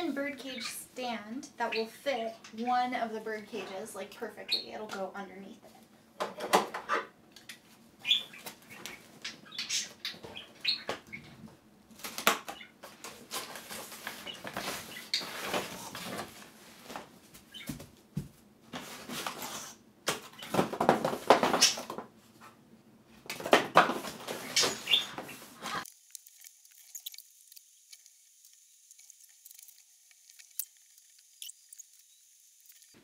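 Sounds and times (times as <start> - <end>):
cardboard and packing rustling: 12.0 - 22.4, 23.3 - 25.9.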